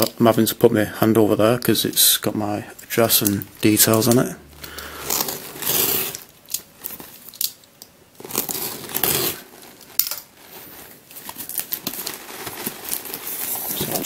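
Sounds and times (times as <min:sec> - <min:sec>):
plastic crinkling and tearing: 0:02.9 - 0:14.0
box cutter slitting plastic film: 0:05.0 - 0:07.6, 0:08.2 - 0:10.1.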